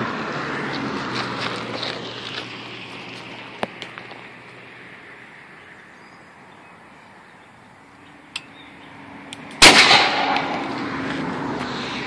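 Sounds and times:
potato cannon blast: 9.6 - 10.4.

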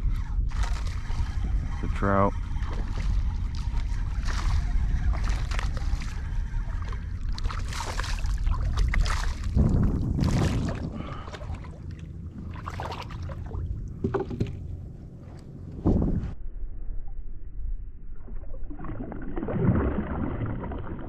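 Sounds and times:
wind rumble on microphone: 0.0 - 21.0
fish splashing in water: 2.4 - 14.6.

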